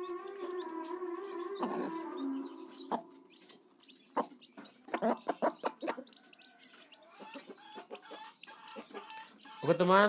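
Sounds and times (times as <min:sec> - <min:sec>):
chicks peeping softly: 0:00.0 - 0:10.0
beaks tapping on dirt floor: 0:02.9 - 0:09.9.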